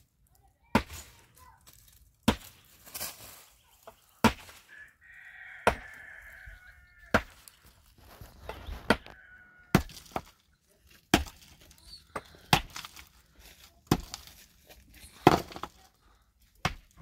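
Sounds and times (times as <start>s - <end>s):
hammer striking rock: 5.6s - 6.0s, 7.1s - 7.4s, 9.7s - 10.3s, 11.1s - 11.4s.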